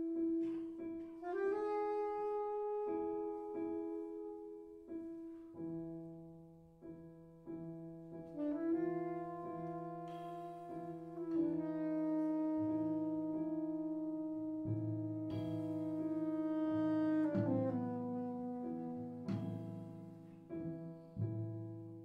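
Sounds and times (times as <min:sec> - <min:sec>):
piano chords: 0:00.0 - 0:22.0
saxophone melody: 0:01.2 - 0:04.6, 0:08.4 - 0:19.4
double bass notes: 0:08.6 - 0:22.0.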